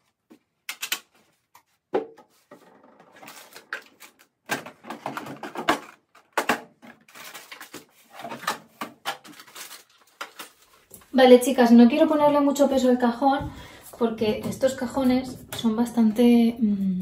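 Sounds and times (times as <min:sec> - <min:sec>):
plastic trays clicking and rattling: 0:02.6 - 0:10.6.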